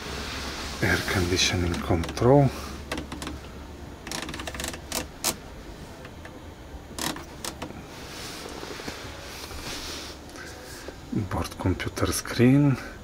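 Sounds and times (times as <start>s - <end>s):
soft hiss: 0.0s - 3.9s, 7.7s - 13.0s
low steady hum: 0.0s - 13.0s
sharp clicks and clatter: 4.1s - 5.4s.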